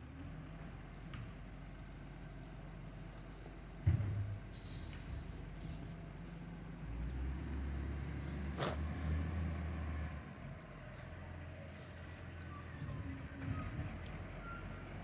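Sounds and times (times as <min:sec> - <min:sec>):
garbage truck diesel engine rumbling: 0:00.0 - 0:15.0.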